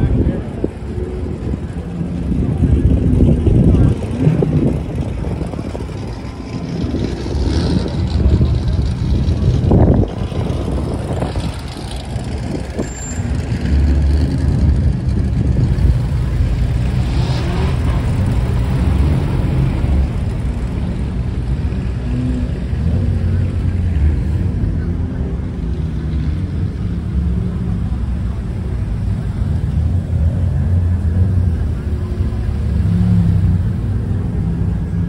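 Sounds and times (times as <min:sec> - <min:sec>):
car engines rumbling: 0:00.0 - 0:35.0.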